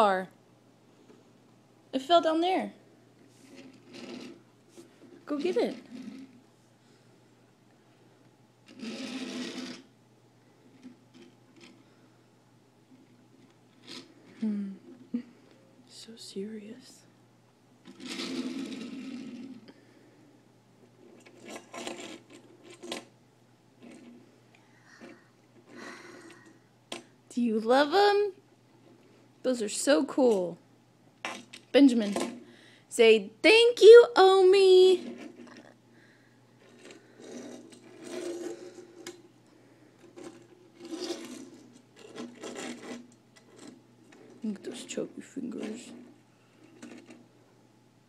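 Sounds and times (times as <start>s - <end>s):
toy cars clicking on wooden table: 8.7s - 9.9s, 13.4s - 14.4s, 21.2s - 23.1s, 36.6s - 39.3s, 40.0s - 44.4s.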